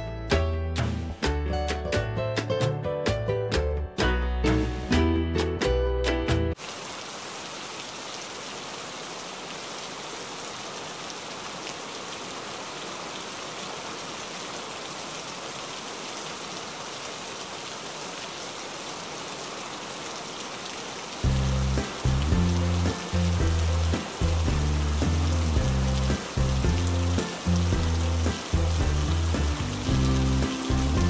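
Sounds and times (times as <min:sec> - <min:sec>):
steady rain: 0:06.5 - 0:31.0.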